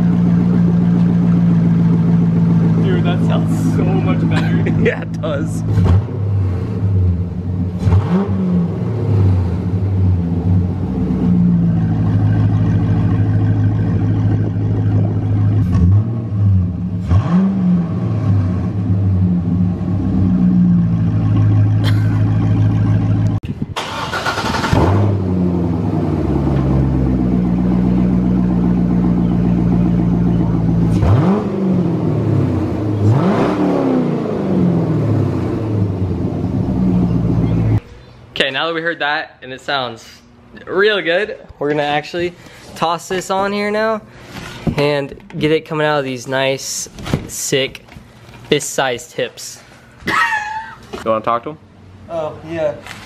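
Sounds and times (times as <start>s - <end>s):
car engine idling and revving: 0.0s - 38.0s.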